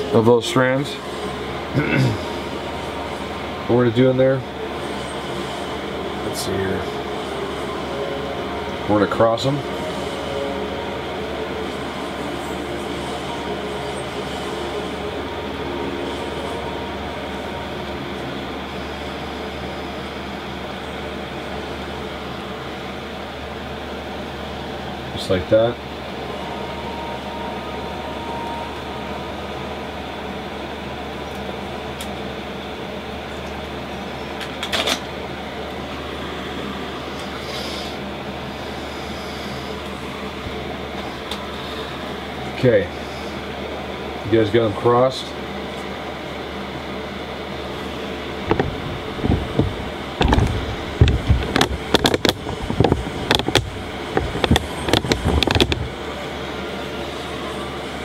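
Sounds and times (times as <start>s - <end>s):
fan humming: 0.0s - 58.0s
cord rustling and clicking by hand: 48.5s - 55.9s.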